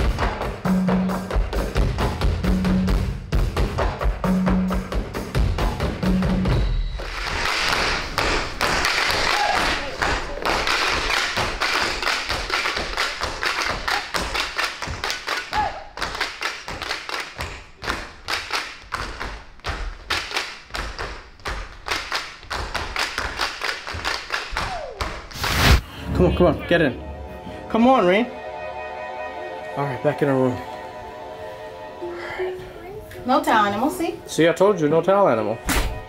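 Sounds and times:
body percussion stomps and claps: 0.0s - 25.4s.

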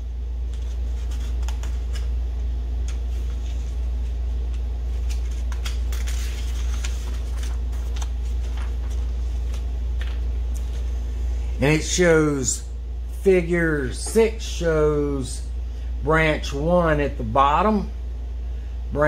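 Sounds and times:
low background rumble: 0.0s - 13.8s
paper pages rustling: 0.4s - 2.2s, 2.8s - 11.0s.

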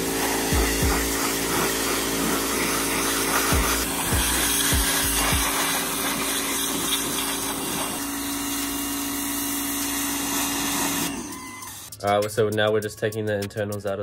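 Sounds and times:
water jet hissing on metal: 0.0s - 8.7s
pressure washer motor humming: 0.0s - 12.0s.

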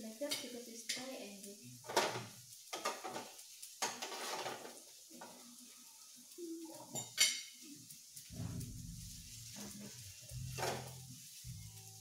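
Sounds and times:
food sizzling on a grill: 0.0s - 12.0s
utensils clinking on plates: 1.8s - 5.4s, 6.8s - 7.6s, 10.4s - 11.1s.

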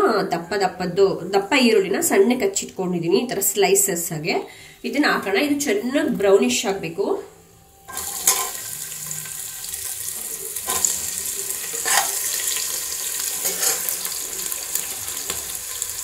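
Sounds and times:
ladle clinking against pot: 7.9s - 8.6s
onions sizzling in hot oil: 7.9s - 16.0s.

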